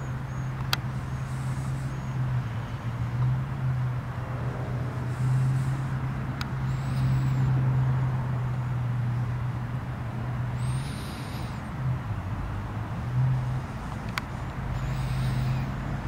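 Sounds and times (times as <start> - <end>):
vehicle engine idling: 0.0 - 16.0
click: 0.6 - 0.8.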